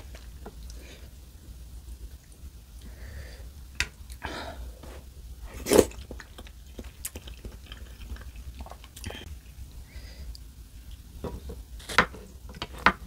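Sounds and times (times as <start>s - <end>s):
person chewing noodles: 5.5s - 11.1s.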